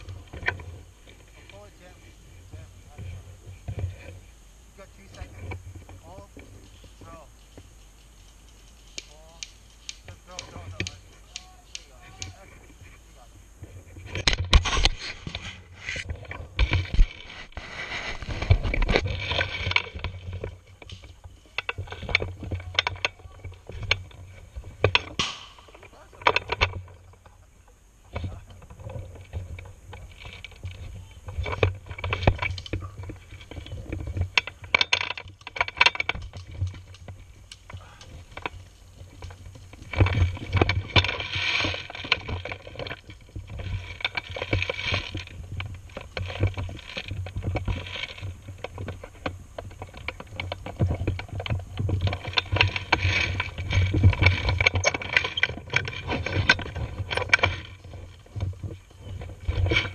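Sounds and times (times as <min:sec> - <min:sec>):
camera handling rubbing and rustling: 0:13.8 - 0:21.1.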